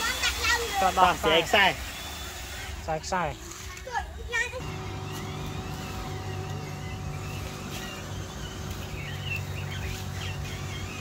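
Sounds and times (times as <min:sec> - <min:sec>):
motor humming: 0:00.0 - 0:03.6, 0:04.6 - 0:11.0
faint high wavering chirps: 0:04.6 - 0:11.0.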